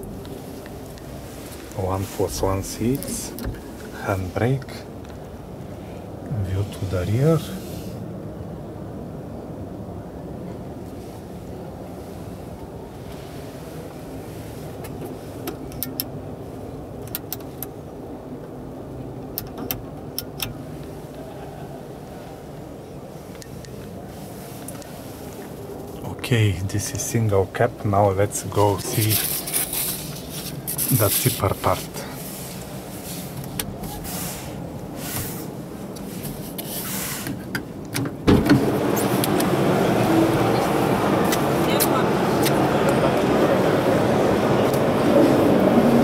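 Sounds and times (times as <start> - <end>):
hum of busy exhibition hall: 0.0 - 46.0
murmur of exhibition hall: 38.8 - 46.0.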